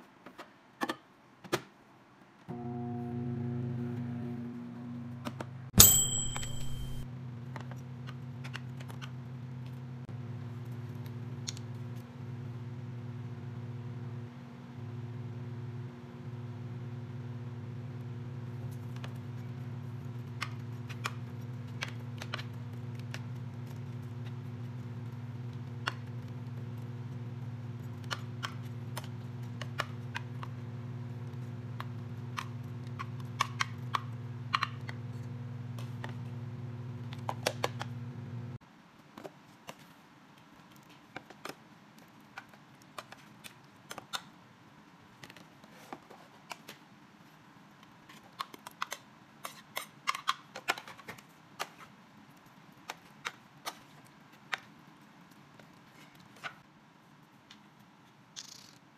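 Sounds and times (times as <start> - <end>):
steady low hum: 2.5 - 8.4.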